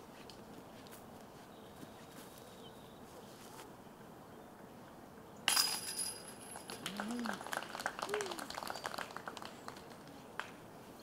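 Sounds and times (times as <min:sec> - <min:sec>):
disc striking metal chains: 0:05.5 - 0:06.7.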